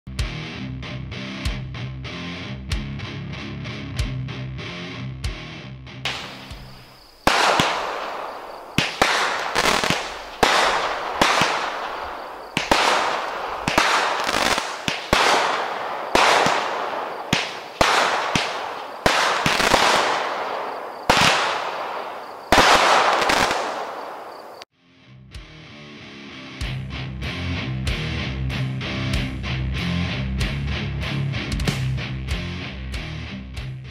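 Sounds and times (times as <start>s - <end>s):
firework shots firing: 6.1s - 24.6s
firework hiss and crackle: 6.1s - 24.7s.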